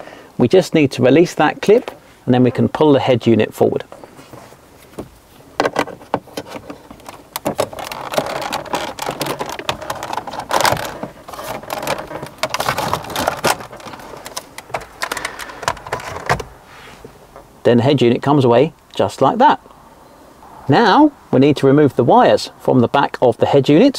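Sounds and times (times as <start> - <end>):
screwdriver scraping plastic trim: 5.6 - 16.4.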